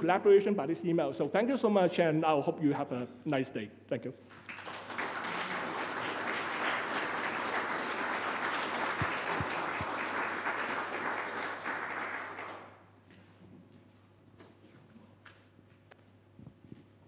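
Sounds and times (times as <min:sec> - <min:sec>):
audience applauding: 0:04.3 - 0:12.8.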